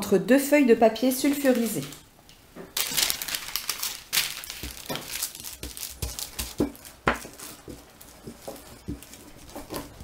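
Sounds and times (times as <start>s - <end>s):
parchment paper crinkling: 1.2s - 2.0s, 2.8s - 10.0s.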